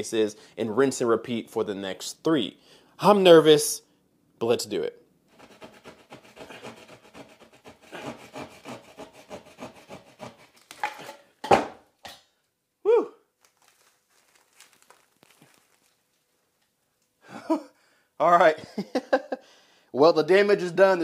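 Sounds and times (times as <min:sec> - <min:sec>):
hand tool scraping drywall: 0:05.3 - 0:11.2.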